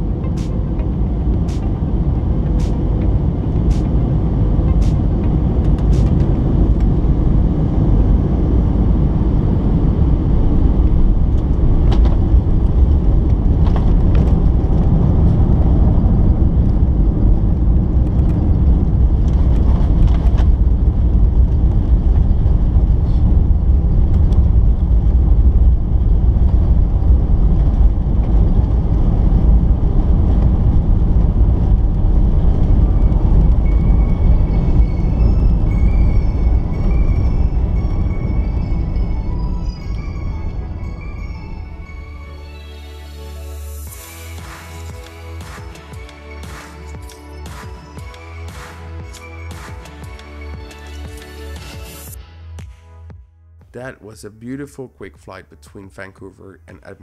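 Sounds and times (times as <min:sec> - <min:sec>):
airliner cabin rumble: 0:00.0 - 0:42.4.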